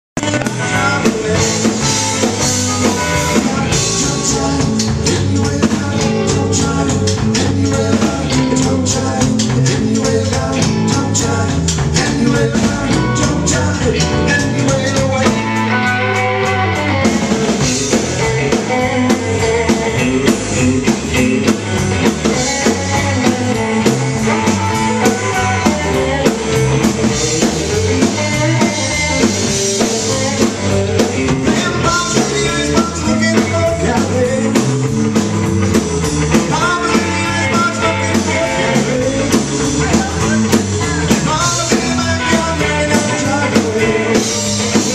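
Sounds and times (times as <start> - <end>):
bass guitar: 0.1 - 44.9
person singing: 0.2 - 35.2, 36.2 - 44.9
distorted electric guitars: 0.2 - 44.9
drum kit beat: 0.2 - 44.9.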